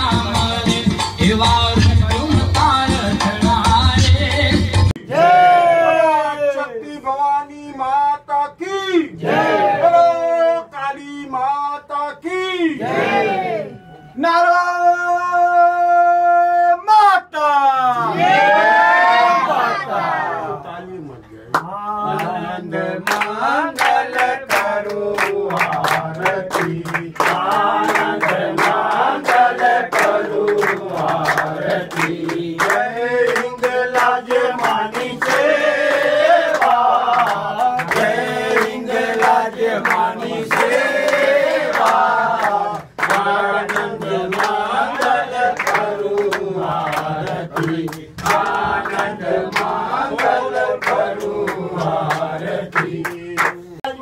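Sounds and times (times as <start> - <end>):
group singing a hymn: 9.2 - 10.3, 12.8 - 13.9, 21.8 - 54.0
hands clapping in time: 23.0 - 53.6.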